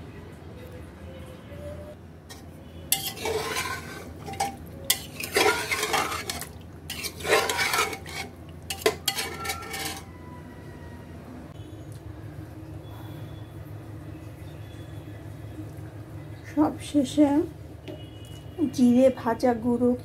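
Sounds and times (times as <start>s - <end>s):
utensil scraping through curry: 2.3s - 10.2s.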